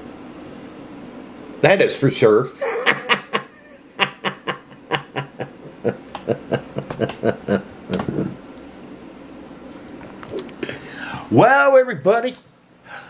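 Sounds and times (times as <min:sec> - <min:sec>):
man chuckling: 0:02.6 - 0:08.4.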